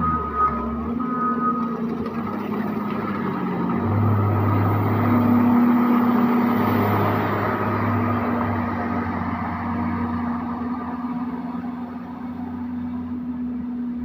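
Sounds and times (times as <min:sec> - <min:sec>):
reversing alarm beep: 0:00.0 - 0:01.8
loader diesel engine running: 0:00.0 - 0:14.0.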